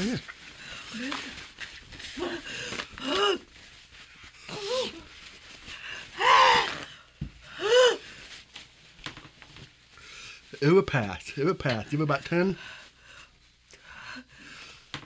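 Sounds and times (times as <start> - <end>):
woman's pained cries and gasps: 6.0 - 8.1.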